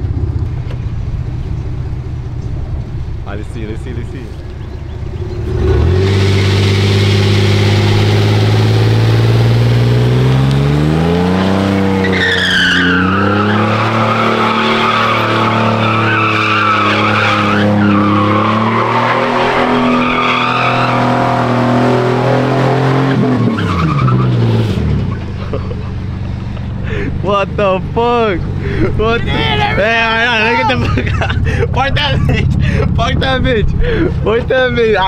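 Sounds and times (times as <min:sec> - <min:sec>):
truck engine revving: 0:04.4 - 0:35.0
tyres squealing: 0:11.9 - 0:21.6.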